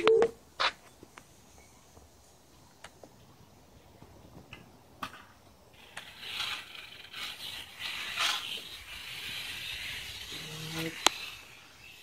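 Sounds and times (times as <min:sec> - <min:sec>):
rattlesnake rattling its tail: 0:05.0 - 0:12.0.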